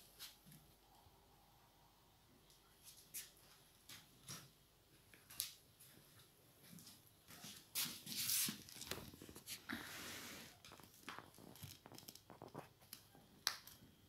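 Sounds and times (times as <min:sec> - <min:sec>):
kitten scratching on ball and floor: 0:07.4 - 0:13.2.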